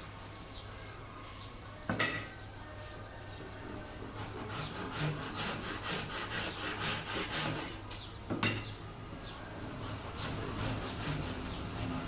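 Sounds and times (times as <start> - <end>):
hand saw cutting wood: 4.0 - 7.8, 9.8 - 12.0.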